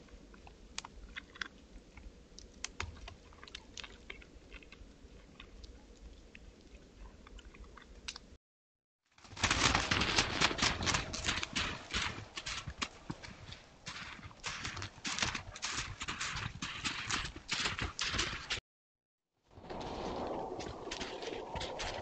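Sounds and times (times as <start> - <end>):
hooves crunching on snow: 9.2 - 18.6, 19.5 - 22.0
deer chewing twigs: 9.3 - 18.6.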